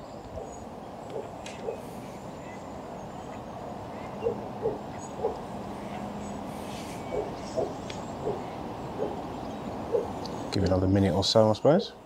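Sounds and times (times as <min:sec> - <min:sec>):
outdoor background noise: 0:00.0 - 0:12.0
pigeon cooing: 0:07.1 - 0:09.2, 0:09.9 - 0:10.2.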